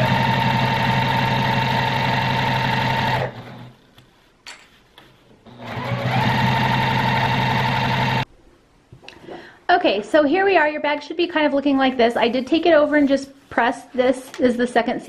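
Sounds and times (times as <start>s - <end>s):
sewing machine stitching: 0.0s - 3.8s, 5.5s - 8.2s.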